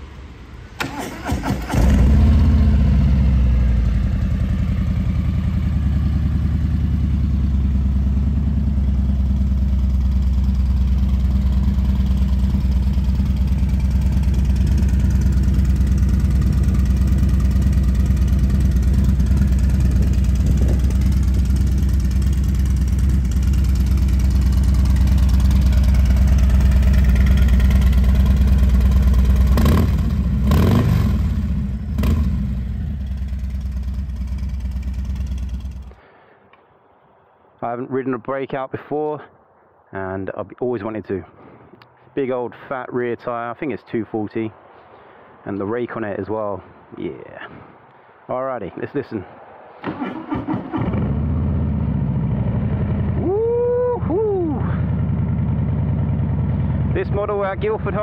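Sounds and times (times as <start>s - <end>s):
motorcycle engine idling: 2.0s - 36.0s, 51.0s - 58.0s
motorcycle throttle blips: 5.8s - 36.6s.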